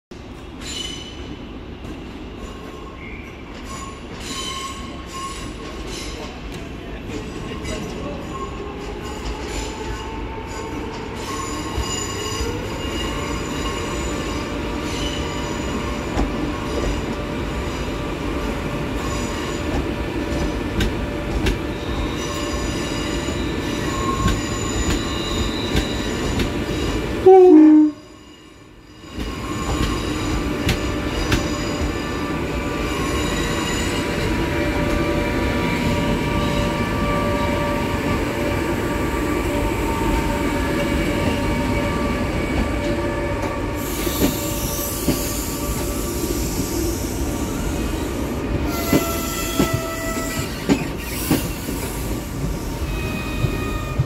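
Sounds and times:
electric locomotive humming: 0:08.0 - 0:54.0
locomotive horn blast: 0:27.2 - 0:28.0.

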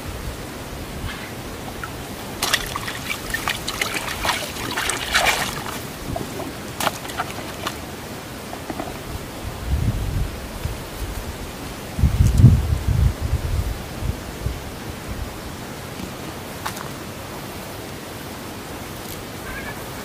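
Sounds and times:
water splashing and trickling: 0:00.5 - 0:09.5.

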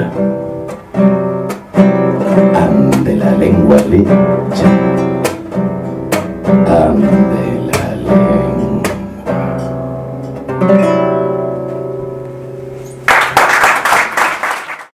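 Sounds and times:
guitar strumming chords: 0:00.0 - 0:13.1
applause: 0:13.0 - 0:14.9.

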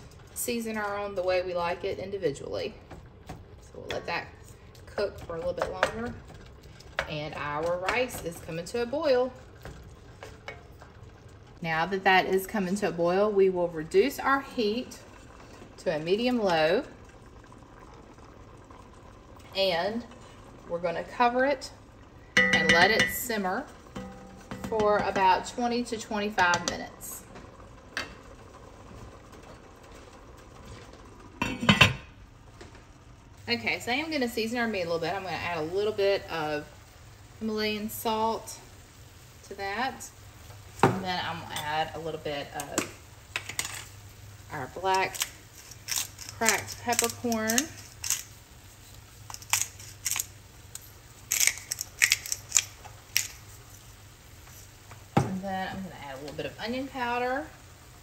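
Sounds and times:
pepper grinder crunching: 0:45.0 - 0:48.4, 0:49.3 - 0:53.4.

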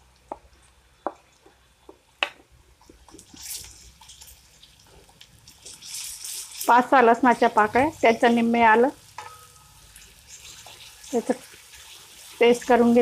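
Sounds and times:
onions sizzling in oil: 0:01.0 - 0:13.0
wooden spatula stirring: 0:02.7 - 0:13.0.

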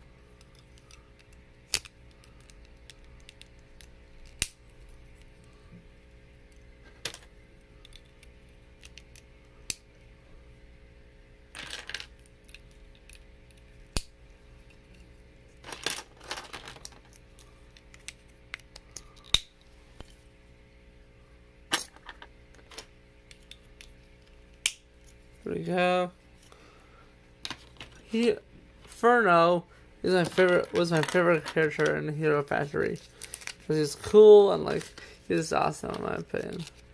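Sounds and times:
faint steady hum: 0:00.0 - 0:36.9
plastic pieces rattling together: 0:15.6 - 0:17.2, 0:30.2 - 0:32.0.

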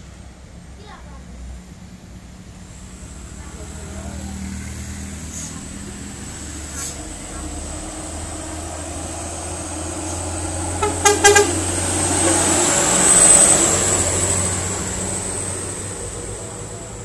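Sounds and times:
diesel truck engine passing: 0:00.0 - 0:17.0
horn short toots: 0:10.8 - 0:12.4.

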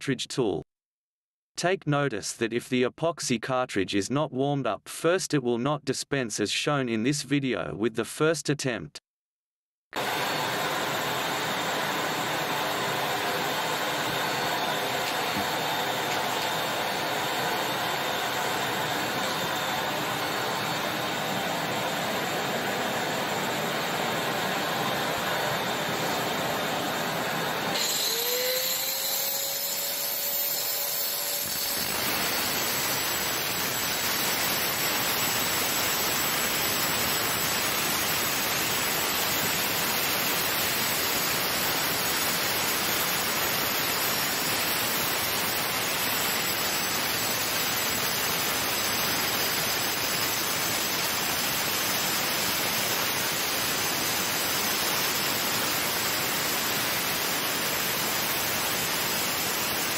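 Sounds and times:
angle grinder cutting concrete: 0:27.8 - 0:36.0.

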